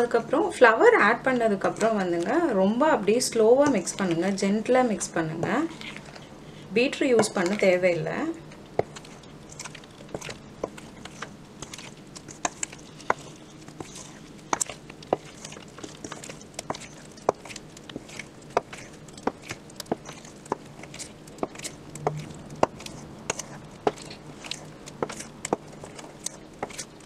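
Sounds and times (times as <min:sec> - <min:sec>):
faint hum: 0:00.0 - 0:27.0
spoon scraping metal bowl: 0:09.0 - 0:26.9.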